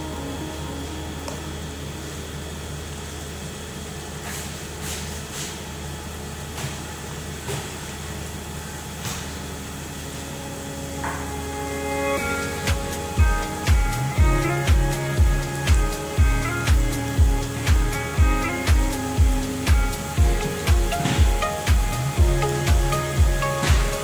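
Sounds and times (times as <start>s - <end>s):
background music: 0.0s - 2.2s, 10.7s - 24.0s
gas burner hum and hiss: 0.0s - 24.0s.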